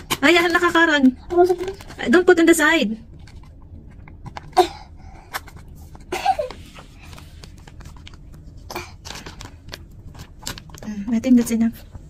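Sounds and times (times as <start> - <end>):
plastic bag crinkling: 7.6 - 11.5.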